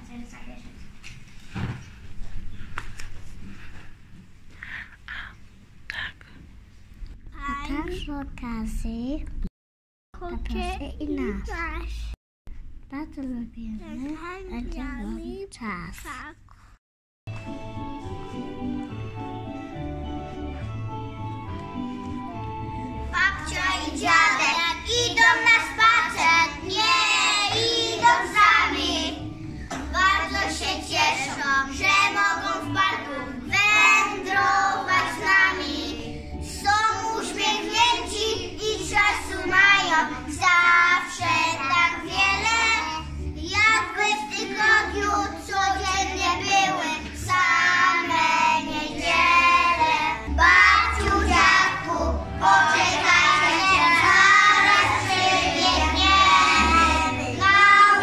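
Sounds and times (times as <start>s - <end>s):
backing music: 17.3s - 58.0s
children singing: 23.0s - 58.0s.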